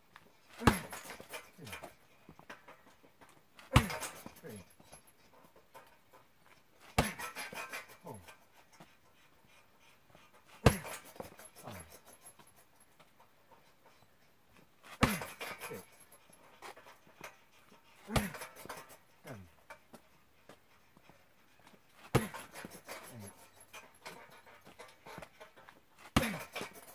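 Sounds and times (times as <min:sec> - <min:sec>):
punches thudding on heavy bag: 0:00.6 - 0:01.9, 0:03.7 - 0:04.4, 0:06.9 - 0:07.6, 0:10.6 - 0:11.3, 0:14.9 - 0:15.8, 0:18.1 - 0:18.6, 0:22.1 - 0:23.4, 0:26.1 - 0:26.8.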